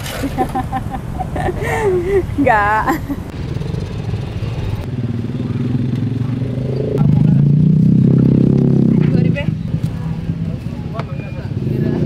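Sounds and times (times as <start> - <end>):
street traffic: 0.0 - 12.0
motorcycle engine running: 3.3 - 12.0.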